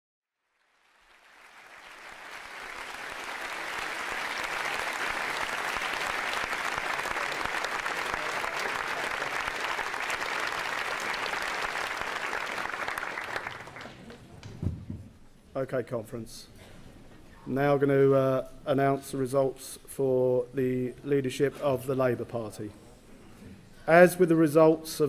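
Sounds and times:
audience applauding: 0.5s - 14.5s.

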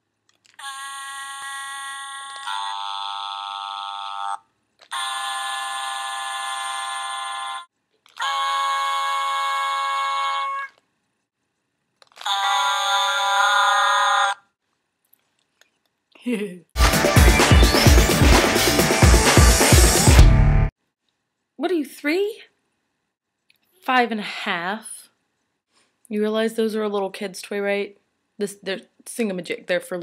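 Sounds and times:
toys singing electronic chords: 16.8s - 20.2s.

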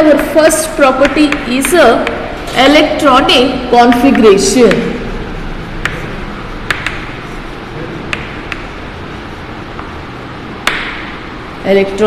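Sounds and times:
room noise: 0.0s - 12.0s
sharp taps on a board: 6.7s - 7.1s, 8.1s - 8.7s, 10.6s - 11.1s.

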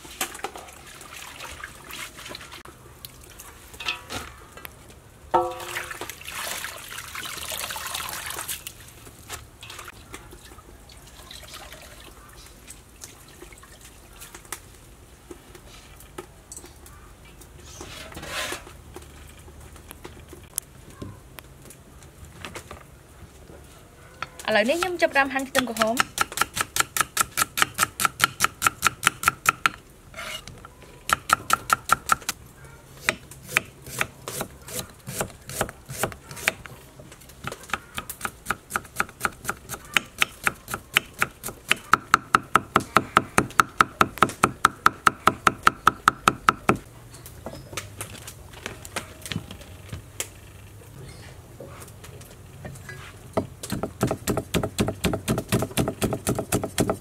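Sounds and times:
cleaver chopping on wooden board: 53.7s - 57.0s.

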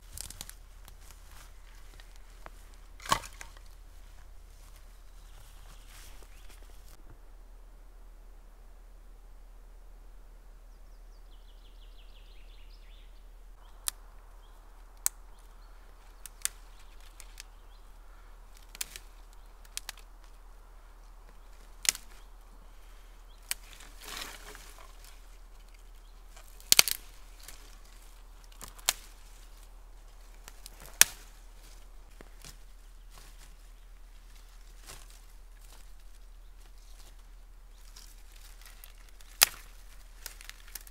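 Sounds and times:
dry twigs snapping: 0.0s - 7.0s, 13.6s - 40.9s
brush rustling: 0.0s - 7.2s, 13.5s - 40.9s
bird chirping: 4.6s - 6.9s, 10.6s - 18.4s, 21.0s - 30.5s.

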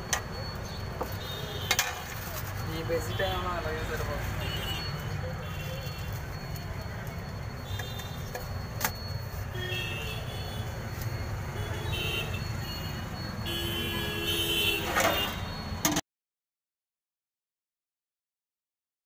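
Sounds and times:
rumble of passing vehicles: 0.0s - 16.0s
vehicle horn toots: 11.6s - 15.7s.

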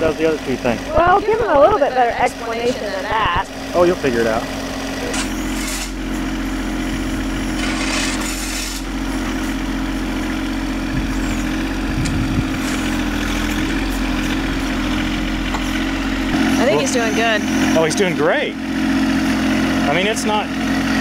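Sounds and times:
diesel tractor engine running: 0.0s - 21.0s
brief scraping: 7.6s - 8.8s.

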